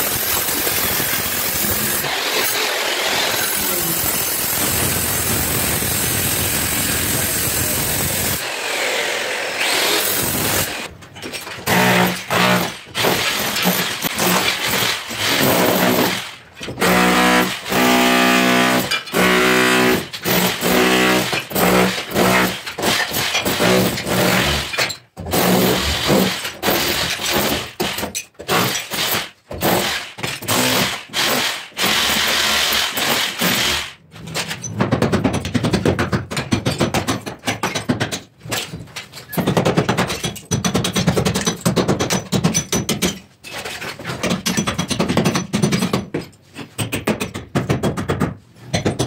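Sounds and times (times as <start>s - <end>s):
demolition hammer chiselling: 0.0s - 49.0s
brick cracking and falling: 34.3s - 49.0s.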